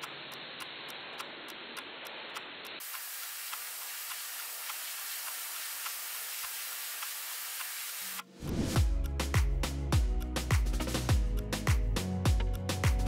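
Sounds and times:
soft ticking: 0:00.0 - 0:02.8
steady hiss: 0:00.0 - 0:08.2.

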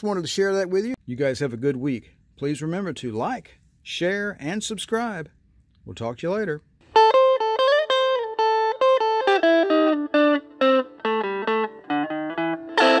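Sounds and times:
guitar melody: 0:06.8 - 0:13.0.

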